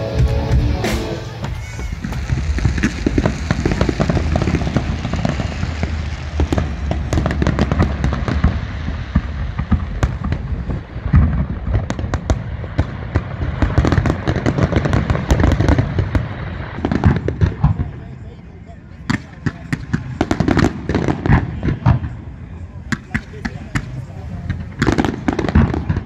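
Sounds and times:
fireworks cracking: 0.0s - 18.2s, 18.8s - 26.0s.

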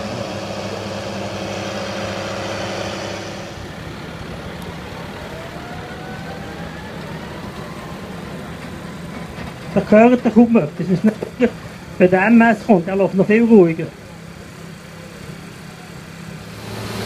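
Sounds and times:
faint whine rising in pitch: 0.0s - 9.1s
tractor engine running: 0.0s - 17.0s.

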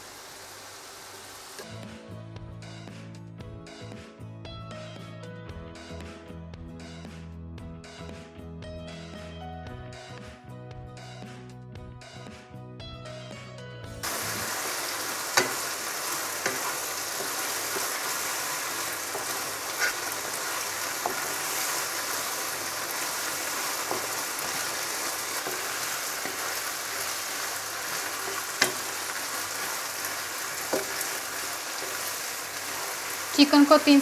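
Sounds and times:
chicken sizzling in hot oil: 0.0s - 1.8s, 14.0s - 34.0s
background music: 1.6s - 34.0s
wooden spatula knocking on pan: 15.4s - 15.7s, 21.0s - 21.6s, 28.2s - 29.0s, 30.7s - 31.1s.

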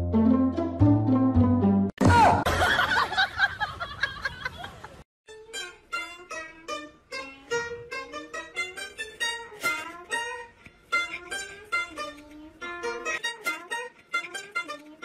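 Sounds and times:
plucked lute melody: 0.0s - 1.9s, 5.3s - 15.0s.

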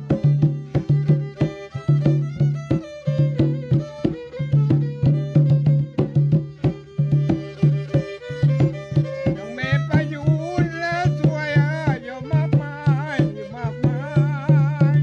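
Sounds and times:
hand drum beating: 0.0s - 15.0s
violin: 0.0s - 15.0s
man singing: 9.2s - 15.0s.

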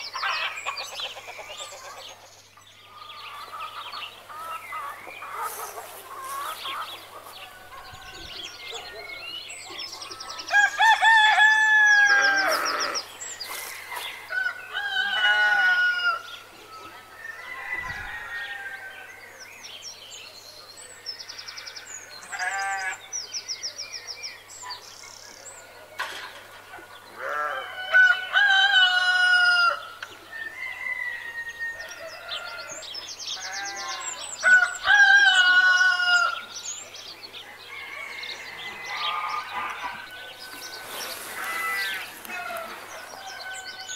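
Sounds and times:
chickens clucking: 0.1s - 2.4s, 3.3s - 9.1s
roosters crowing: 10.3s - 19.2s, 27.1s - 36.6s, 37.4s - 43.9s.

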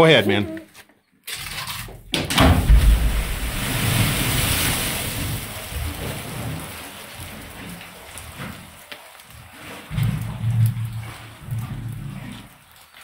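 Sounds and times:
load splashing into water: 2.3s - 10.4s
deep rumble: 2.5s - 6.0s.

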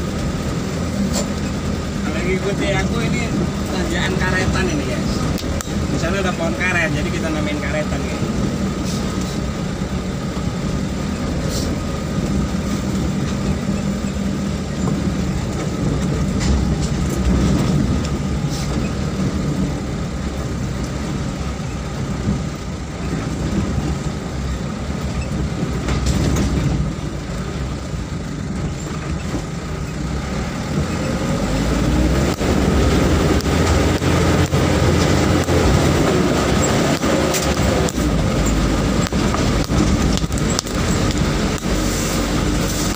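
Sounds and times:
vehicle engine under load: 0.0s - 42.9s
vehicle body rattling and knocking: 12.0s - 31.2s, 32.2s - 41.8s.

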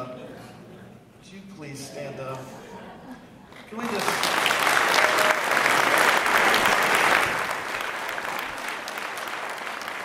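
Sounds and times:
congregation applauding: 3.5s - 10.0s.

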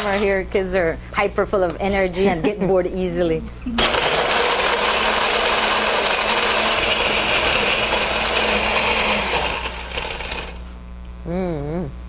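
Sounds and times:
blender crushing ice: 0.0s - 0.4s, 3.8s - 10.6s.

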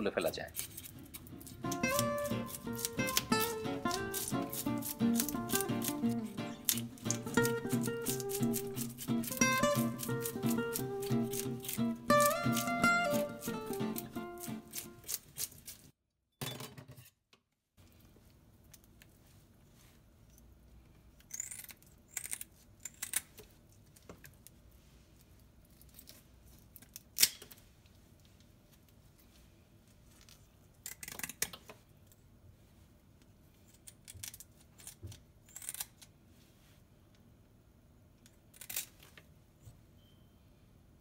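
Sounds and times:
kitchen shears snipping fish: 0.5s - 15.9s
background music: 1.1s - 15.1s.

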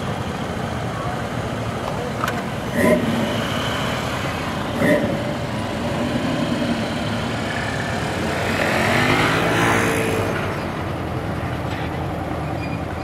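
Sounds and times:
car engines driving past: 0.6s - 13.0s.

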